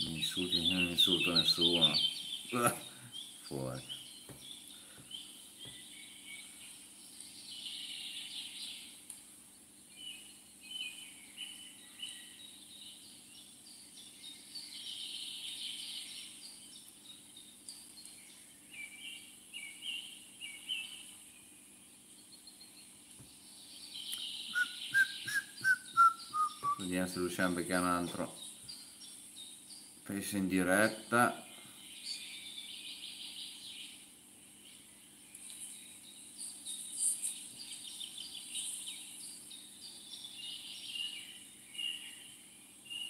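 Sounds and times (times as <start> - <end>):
small birds chirping: 0.0 - 43.0
descending whistled notes: 24.5 - 26.9.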